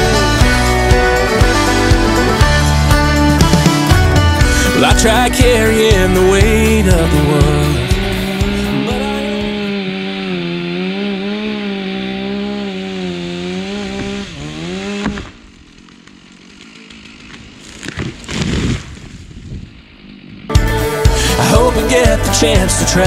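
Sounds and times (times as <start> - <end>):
chainsaw cutting at high revs: 0.0 - 23.0
treetop crashing through branches: 14.9 - 19.6.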